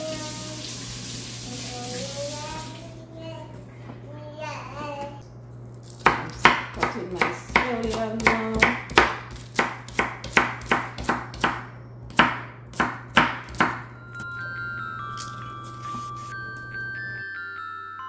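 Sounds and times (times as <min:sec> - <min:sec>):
knife chopping on wooden board: 0:06.0 - 0:13.8
light chiming music: 0:13.8 - 0:18.0.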